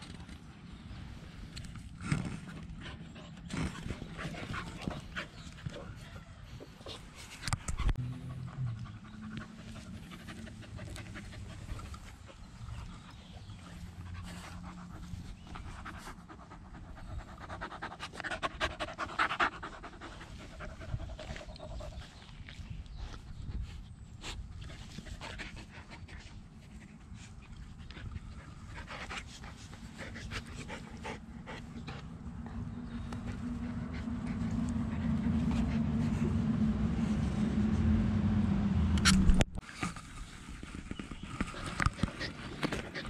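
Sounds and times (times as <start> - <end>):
dogs panting: 2.0 - 37.1, 40.9 - 43.0
low rumble: 30.8 - 39.6.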